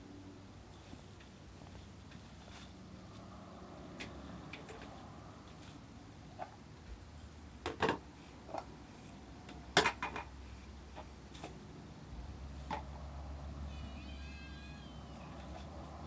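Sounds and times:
cat meowing: 13.6s - 15.7s.

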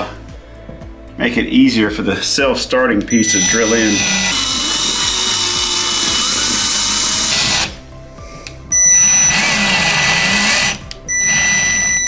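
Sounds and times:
power drill driving anchor: 3.1s - 7.8s, 8.8s - 12.0s.

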